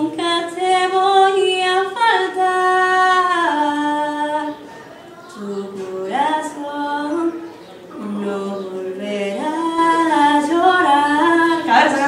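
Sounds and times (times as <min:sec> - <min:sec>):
woman singing unaccompanied: 0:00.0 - 0:04.7, 0:05.3 - 0:12.0.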